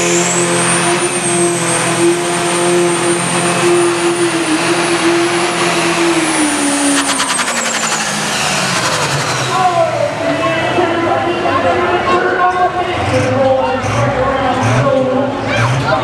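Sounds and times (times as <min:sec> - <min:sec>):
diesel tractor engine at full throttle: 0:00.0 - 0:16.0
turbo whine: 0:06.5 - 0:10.5.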